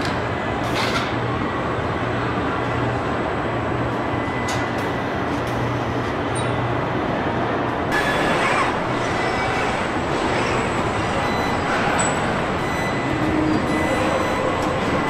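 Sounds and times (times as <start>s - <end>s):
assembly-line machinery rushing noise: 7.9s - 15.0s.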